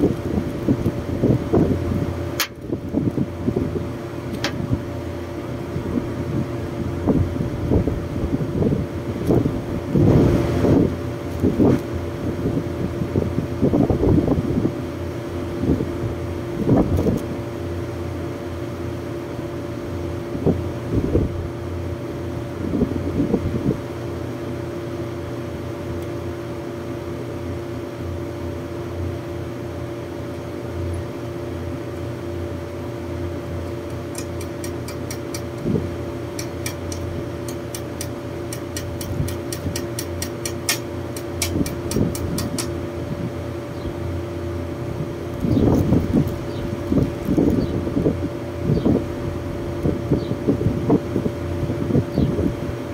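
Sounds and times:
air-conditioning units humming: 0:00.0 - 0:52.9.

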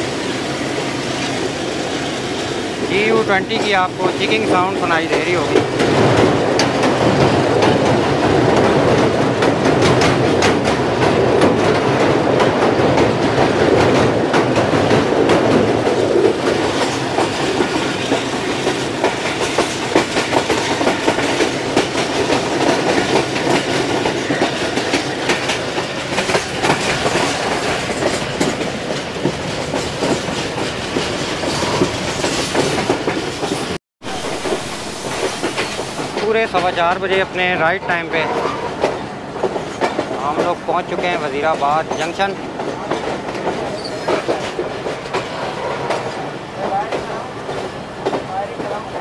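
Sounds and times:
train rumbling over steel bridge: 0:00.0 - 0:49.0
train wheels clattering over rail joints: 0:03.0 - 0:48.9.

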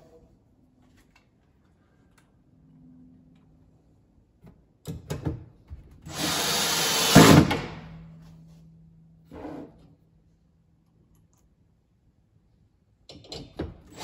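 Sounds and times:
cordless drill driving a screw: 0:06.1 - 0:07.4.

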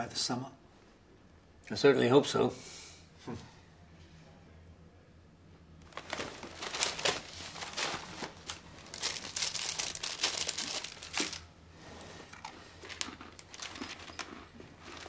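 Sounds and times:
newspaper pages rustling: 0:05.8 - 0:11.4.

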